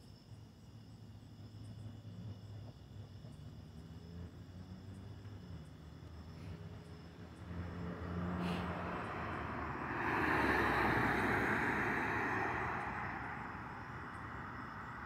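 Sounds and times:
car passing: 0:01.4 - 0:15.0.

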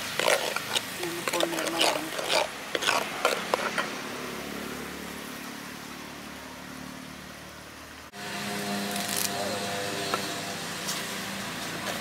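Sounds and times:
paste sizzling in hot oil: 0:00.0 - 0:03.9.

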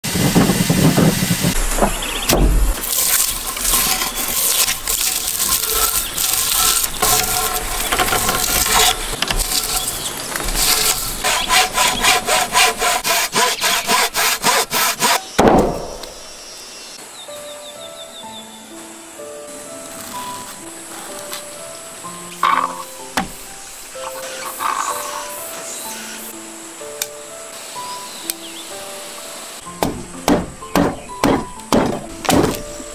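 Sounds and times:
loud wood crack: 0:00.4 - 0:12.2, 0:29.8 - 0:32.8
saw cutting through a log: 0:02.7 - 0:15.4.

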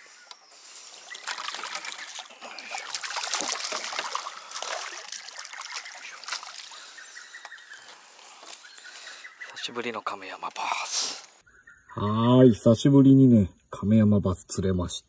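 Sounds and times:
fish splashing at surface: 0:01.1 - 0:06.9
water pouring off net: 0:01.2 - 0:06.9.

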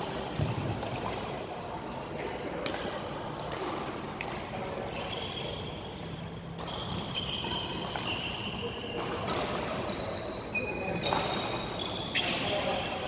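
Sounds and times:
shoes squeaking on floor: 0:01.8 - 0:13.0
racket hitting shuttlecock: 0:06.0 - 0:09.8.

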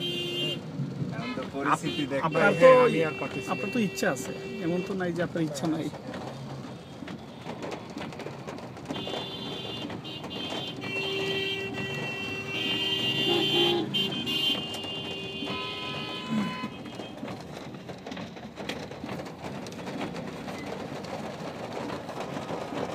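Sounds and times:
vehicle horns honking: 0:00.0 - 0:00.6, 0:01.2 - 0:05.2, 0:08.9 - 0:17.4
road noise: 0:00.0 - 0:22.9.

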